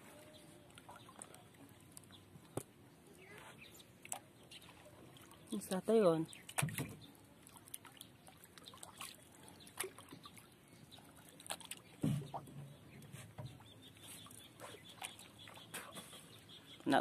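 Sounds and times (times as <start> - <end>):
water lapping around boat: 0.0 - 17.0.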